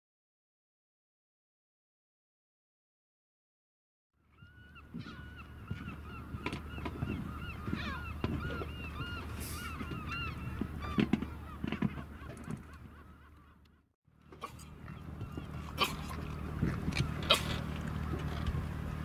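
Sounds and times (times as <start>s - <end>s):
sneeze: 15.8s - 16.0s, 17.2s - 17.6s
sheep coughing: 15.8s - 16.1s, 17.2s - 17.6s.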